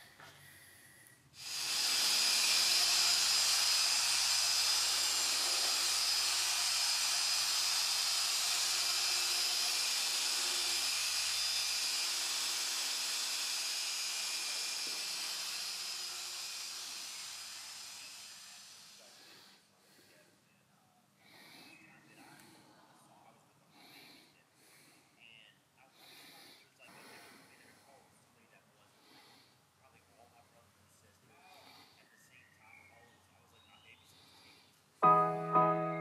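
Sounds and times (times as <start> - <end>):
polisher whirring: 1.4 - 19.2.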